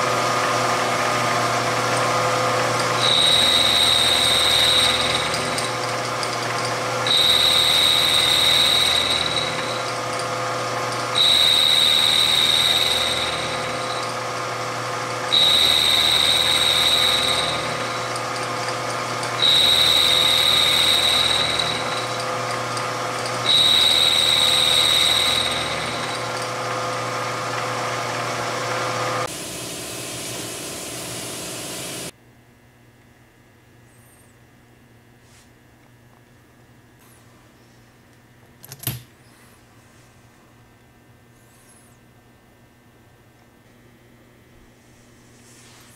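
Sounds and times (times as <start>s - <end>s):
milling machine cutting metal: 0.0s - 29.3s
machine running quietly: 0.0s - 32.1s.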